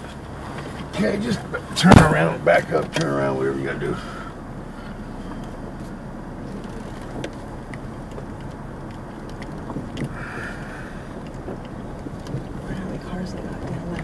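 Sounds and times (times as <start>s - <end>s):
engine and road rumble: 0.0s - 14.0s
small clicks and rattles: 6.5s - 14.0s.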